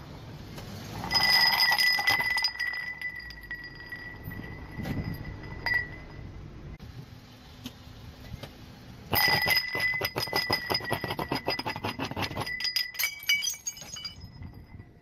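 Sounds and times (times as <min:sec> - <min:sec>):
glass tumblers cracking and clinking: 0:01.0 - 0:06.2, 0:09.1 - 0:14.9.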